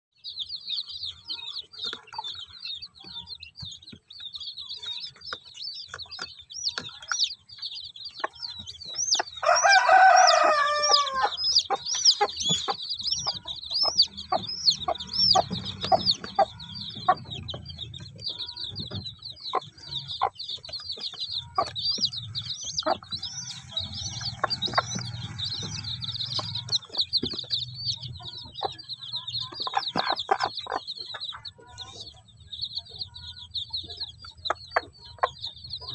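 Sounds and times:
chicks peeping: 0:00.2 - 0:35.9
rooster crowing: 0:09.4 - 0:11.5.

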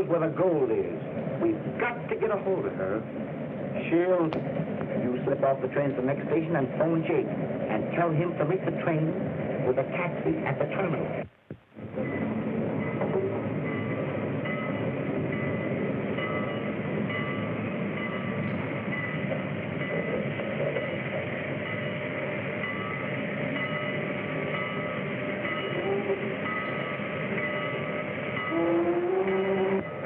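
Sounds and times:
passenger train running: 0:00.0 - 0:30.0.

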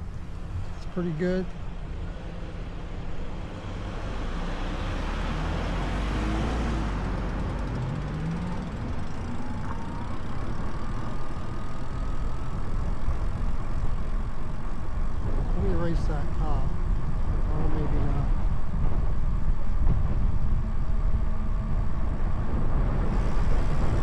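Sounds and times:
air hiss and road noise: 0:00.0 - 0:20.4, 0:22.2 - 0:24.0
wind buffeting microphone: 0:07.3 - 0:24.0.

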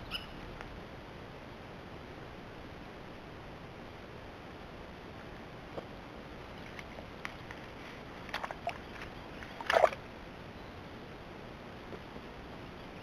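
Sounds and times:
deer slurping water: 0:08.2 - 0:10.0.

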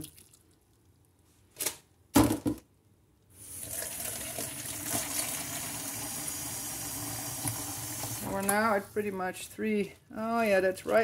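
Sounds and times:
water pouring into a pot: 0:03.5 - 0:08.3.

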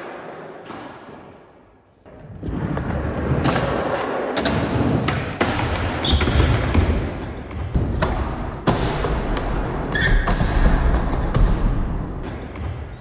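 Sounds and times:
skateboard wheels rolling on concrete: 0:00.0 - 0:01.3, 0:02.1 - 0:07.4.

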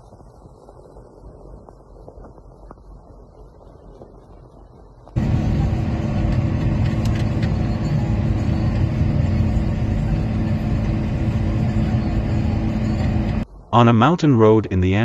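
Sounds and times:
vehicle engine running: 0:05.2 - 0:13.4.

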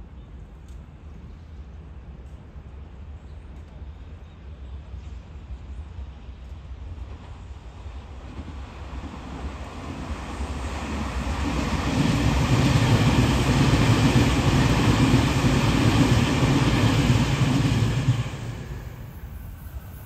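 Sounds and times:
electric train passing: 0:05.7 - 0:20.0.

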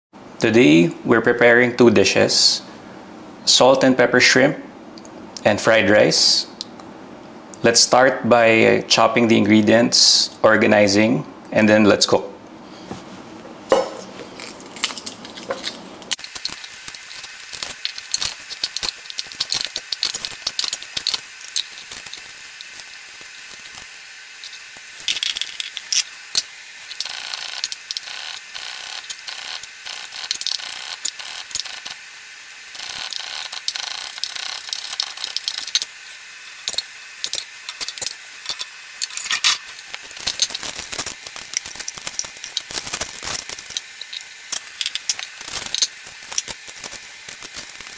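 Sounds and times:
garlic skins crackling: 0:14.1 - 0:32.0, 0:32.8 - 0:47.9.

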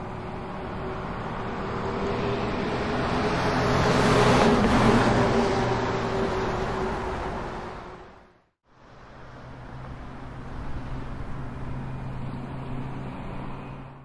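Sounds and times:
vehicle driving past: 0:00.0 - 0:08.4.

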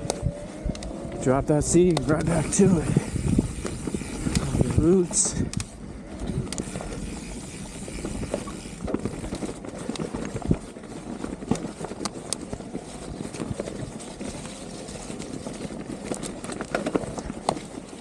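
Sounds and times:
tyres rumbling on dirt: 0:00.0 - 0:05.5
bike clacking and rattling: 0:00.0 - 0:18.0.

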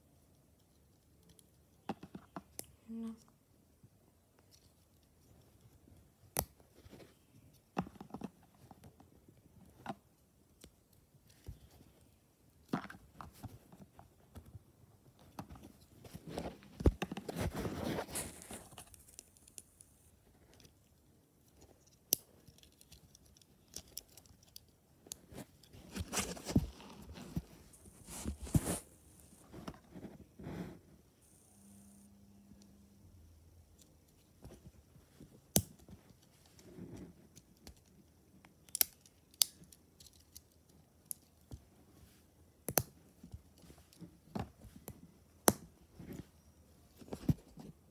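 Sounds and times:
rustling and scraping: 0:11.2 - 0:20.8, 0:21.5 - 0:31.1, 0:34.0 - 0:37.4, 0:43.0 - 0:47.9.

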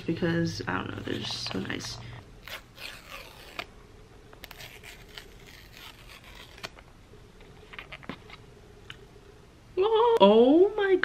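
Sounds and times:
paper strips ripping: 0:02.4 - 0:03.7, 0:04.4 - 0:06.8.

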